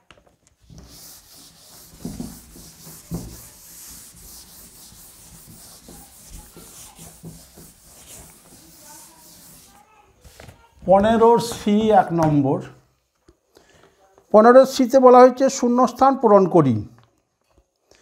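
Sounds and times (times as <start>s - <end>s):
pen scratching on paper: 0.6s - 9.9s.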